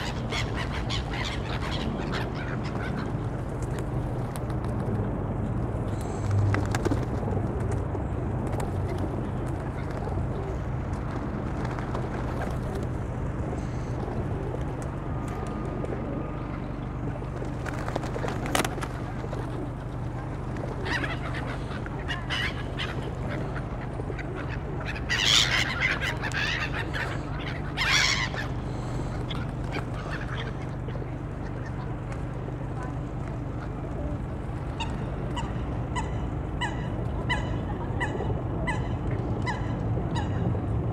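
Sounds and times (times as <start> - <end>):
waterbirds calling: 0.0 - 3.4, 16.5 - 40.6
low background hum: 0.0 - 40.9.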